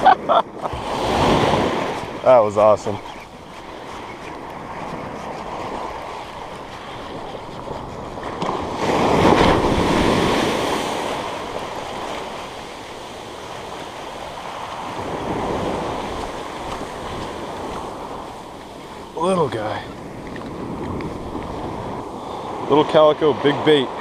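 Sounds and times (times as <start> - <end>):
ocean surf washing up beach: 0.0 - 24.0
wind buffeting microphone: 0.0 - 24.0
wave breaking and rushing in: 0.6 - 2.8, 8.2 - 23.8.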